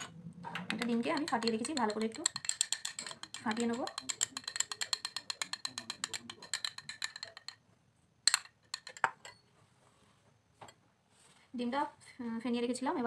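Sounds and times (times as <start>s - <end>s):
utensil beating egg in bowl: 0.0s - 7.6s, 8.3s - 9.4s.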